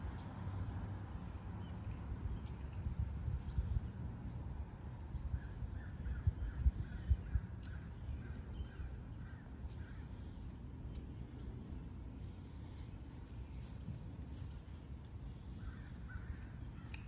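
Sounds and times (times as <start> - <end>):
wind buffeting microphone: 2.1 - 9.0.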